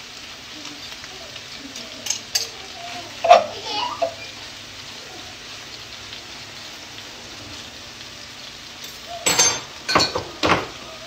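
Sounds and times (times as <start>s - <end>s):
chicken sizzling in a skillet: 0.0s - 11.0s.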